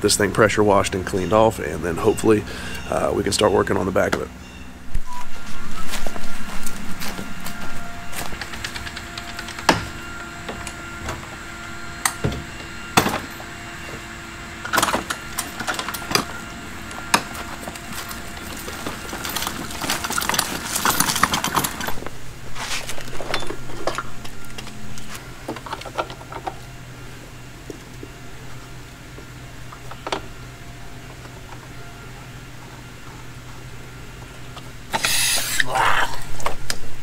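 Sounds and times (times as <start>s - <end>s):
steady low hum: 0.0s - 37.0s
equipment clicking and rattling: 8.1s - 10.0s, 17.2s - 22.2s.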